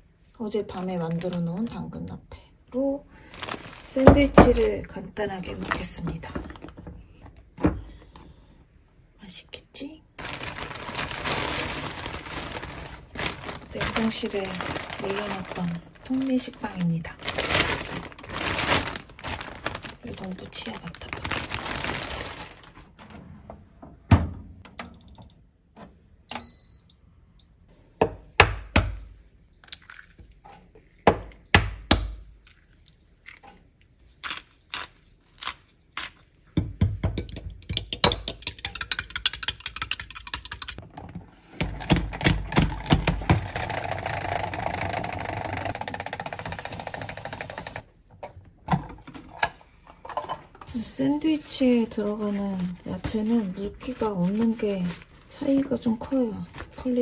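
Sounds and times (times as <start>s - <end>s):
fork beating egg in glass: 37.2s - 40.8s.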